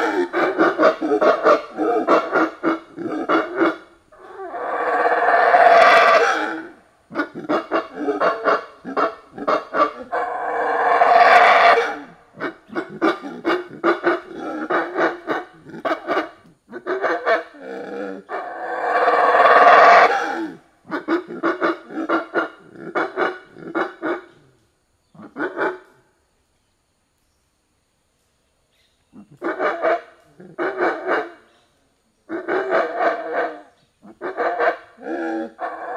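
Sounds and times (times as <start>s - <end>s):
monkey screaming: 0.0s - 13.4s, 18.3s - 21.1s
monkey barking hoots: 0.0s - 24.4s, 29.2s - 31.4s, 32.3s - 35.9s.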